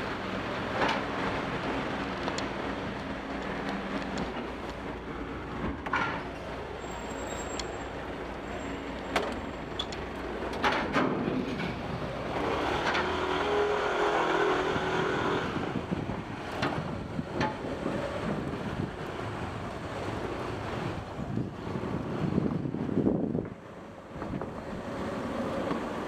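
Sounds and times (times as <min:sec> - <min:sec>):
truck engines running: 0:00.0 - 0:26.0
loud humming engine: 0:12.1 - 0:16.7.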